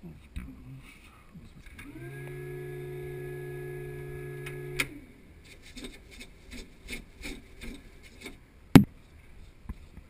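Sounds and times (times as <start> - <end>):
electrical hum: 0.0 - 10.0
hand pump scraping strokes: 5.4 - 8.4.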